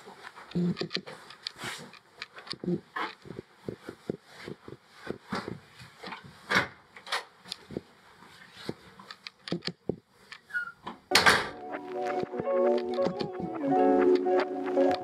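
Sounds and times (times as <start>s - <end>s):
footsteps: 11.4s - 15.0s.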